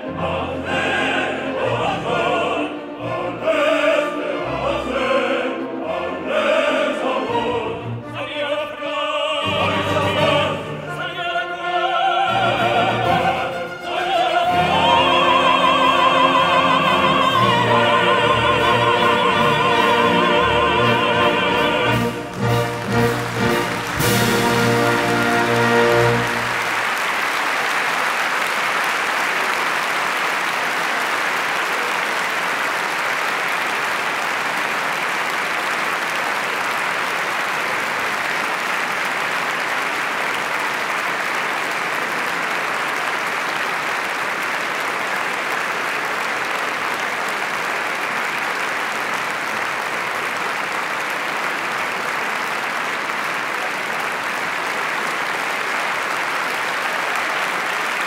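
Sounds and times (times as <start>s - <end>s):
audience applauding: 12.0s - 58.0s.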